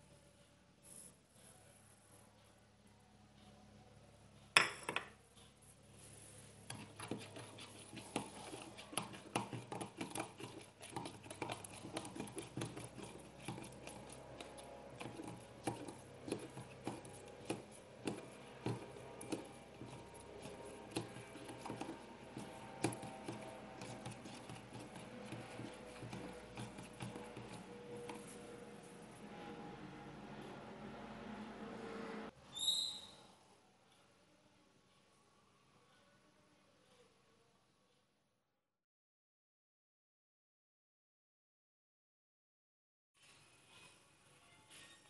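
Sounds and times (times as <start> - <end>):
metal spoon stirring in jug: 6.6 - 28.6.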